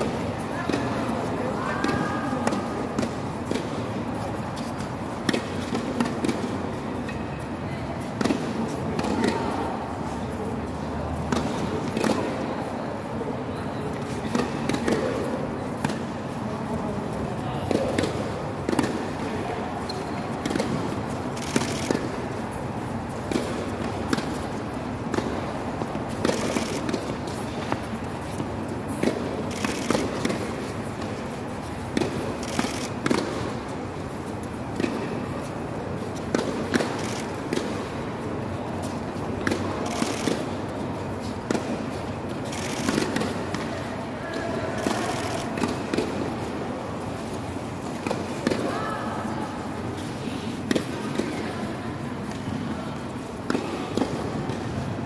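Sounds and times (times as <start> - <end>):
tennis balls struck and bouncing: 0.0 - 13.1, 13.9 - 44.2, 44.8 - 55.0
steady background noise: 0.0 - 55.0.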